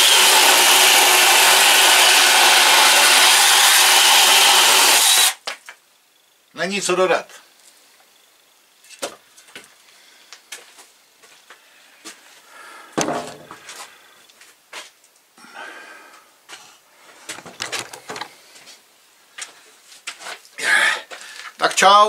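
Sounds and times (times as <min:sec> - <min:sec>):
hatchet chopping wood: 0:13.0 - 0:13.5
wood knocking and clattering: 0:13.0 - 0:13.8, 0:17.3 - 0:18.4.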